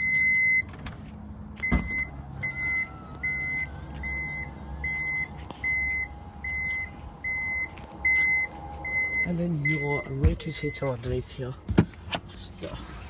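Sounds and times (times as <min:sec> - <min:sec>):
warning beeper: 0:01.6 - 0:11.0.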